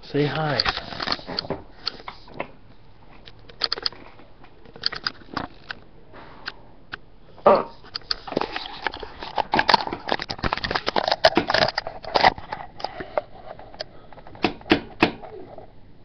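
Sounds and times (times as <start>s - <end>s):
webcam handling noise: 0.5s - 2.3s, 3.2s - 5.8s, 7.8s - 15.0s.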